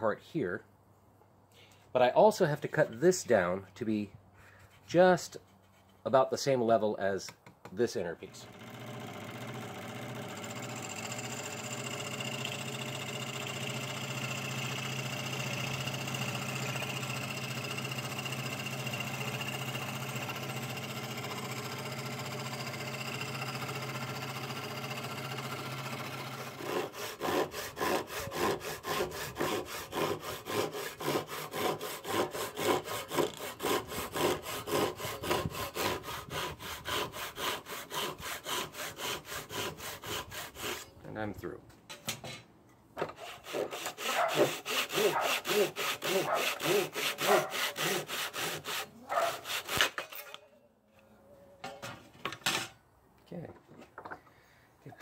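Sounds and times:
electric scroll saw running: 0:08.3 - 0:40.8, 0:43.4 - 0:50.0
handsaw rasping through wood: 0:10.1 - 0:40.9, 0:43.1 - 0:50.2.

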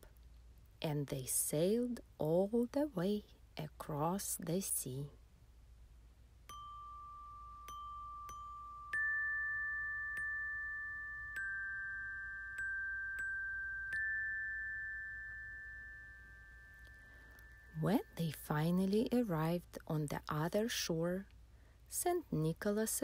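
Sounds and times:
metal chimes ringing: 0:06.5 - 0:18.4.

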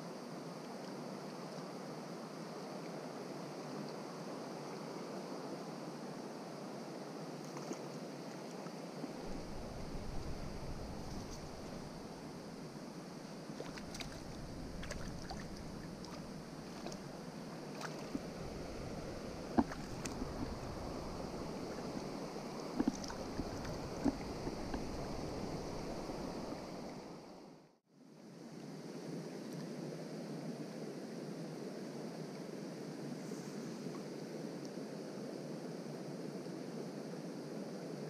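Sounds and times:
river water running: 0:06.8 - 0:27.6.

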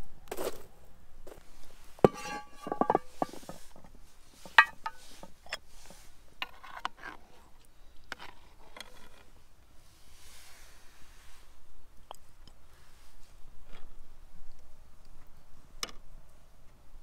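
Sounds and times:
metal ladle clinking in pot: 0:02.0 - 0:03.4, 0:04.5 - 0:05.1
pot lid clanking: 0:02.0 - 0:03.5, 0:04.5 - 0:05.2.

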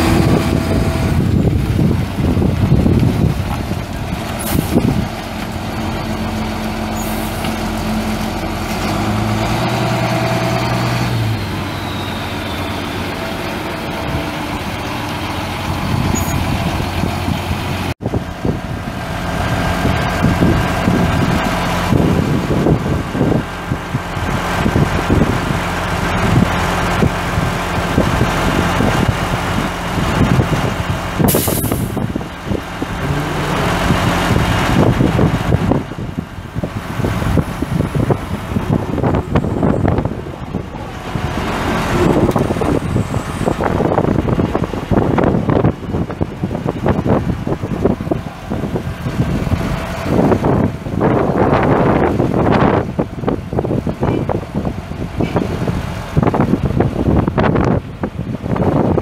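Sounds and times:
diesel truck engine running: 0:00.0 - 0:59.0
air hiss: 0:31.3 - 0:32.0.

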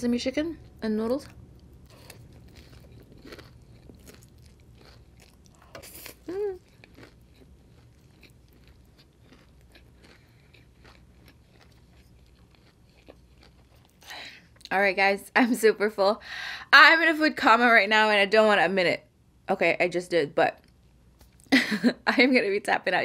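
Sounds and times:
chewing noodles: 0:00.6 - 0:14.7
person humming mm: 0:05.8 - 0:06.6.

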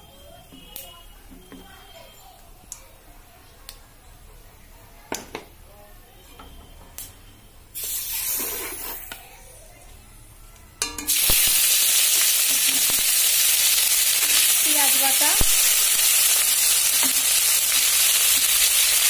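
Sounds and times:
hot oil hissing and clicking: 0:07.8 - 0:09.1, 0:10.9 - 0:19.0
onion paste sizzling in oil: 0:07.8 - 0:09.2, 0:10.9 - 0:19.0.

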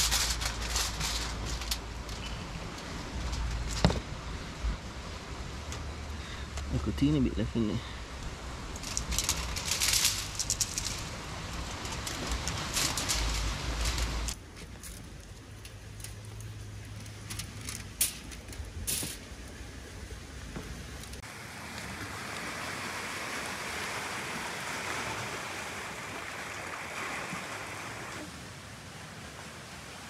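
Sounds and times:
aluminium foil crackling: 0:00.0 - 0:04.1, 0:08.6 - 0:19.2
surf washing against rocks: 0:07.2 - 0:14.4, 0:21.2 - 0:30.0.

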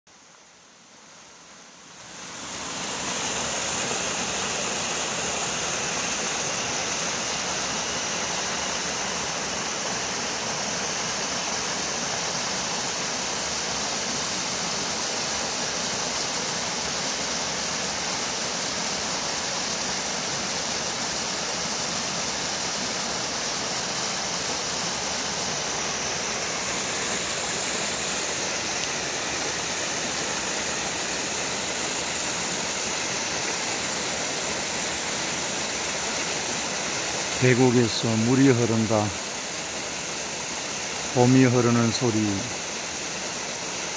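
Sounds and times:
stream water rushing over rocks: 0:00.2 - 0:43.9.

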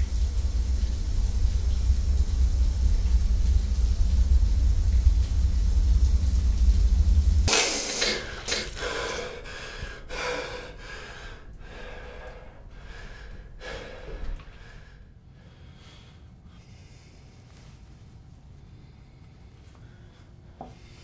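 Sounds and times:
low rumble: 0:00.0 - 0:15.3
man gasping and breathing hard: 0:07.9 - 0:15.0.

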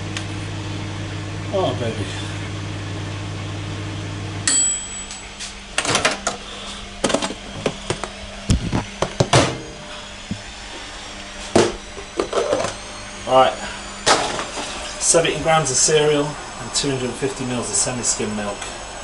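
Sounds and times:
microwave oven humming: 0:00.0 - 0:19.0
microwave timer bell ding: 0:04.4 - 0:05.4.

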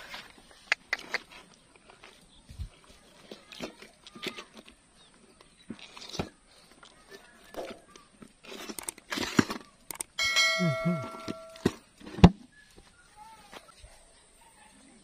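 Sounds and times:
bell-like chime effect: 0:10.2 - 0:11.7.

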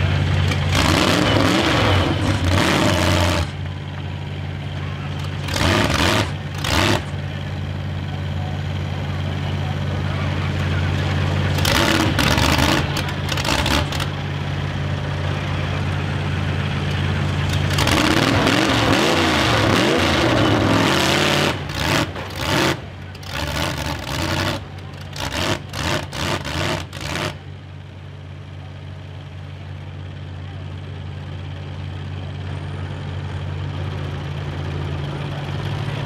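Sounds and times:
engine revving: 0:00.0 - 0:03.7, 0:05.1 - 0:07.3, 0:10.0 - 0:14.2, 0:16.8 - 0:27.4
car engines idling: 0:00.0 - 0:36.0.

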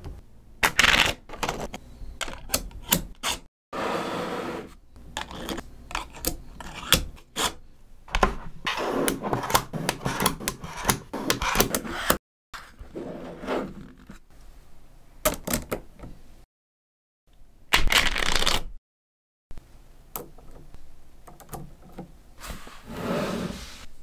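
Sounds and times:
balls rubbing and rolling: 0:08.2 - 0:12.2.

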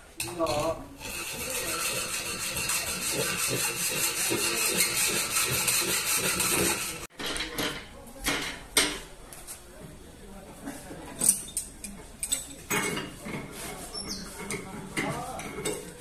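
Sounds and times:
hacksaw cutting metal pipe: 0:00.2 - 0:07.1.

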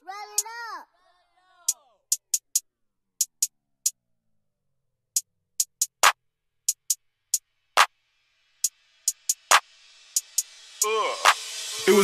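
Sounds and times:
drum machine ticks: 0:00.0 - 0:00.7, 0:01.7 - 0:02.6, 0:03.2 - 0:03.5, 0:05.2 - 0:08.0, 0:08.6 - 0:12.0.

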